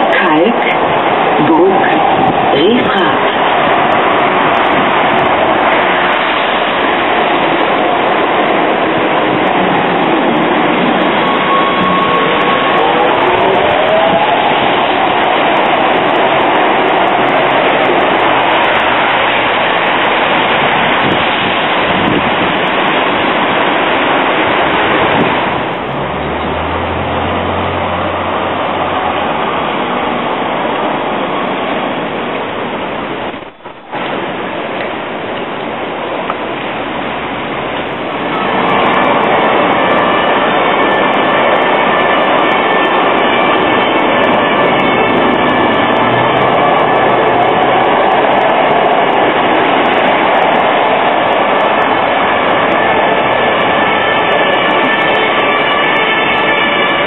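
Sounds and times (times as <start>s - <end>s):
tram rushing noise: 0.0s - 57.0s
tram wheels squealing: 9.2s - 21.0s, 37.5s - 57.0s.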